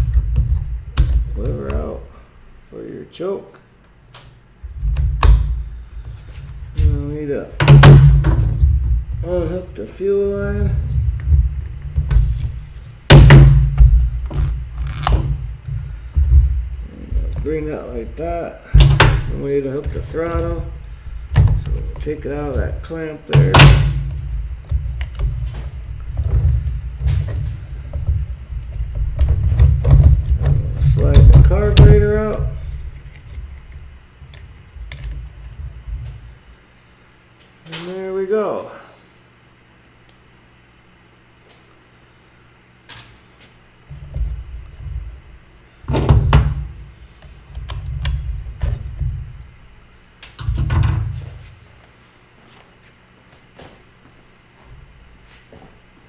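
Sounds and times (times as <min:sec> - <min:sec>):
steady low rumble: 0:04.0 - 0:37.1.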